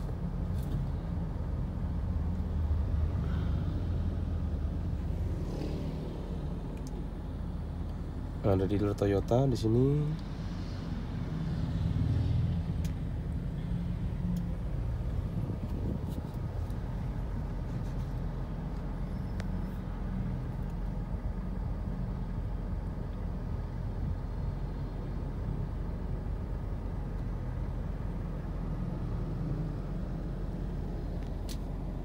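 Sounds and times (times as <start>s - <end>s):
car engine rumble and road noise: 0.0s - 32.0s.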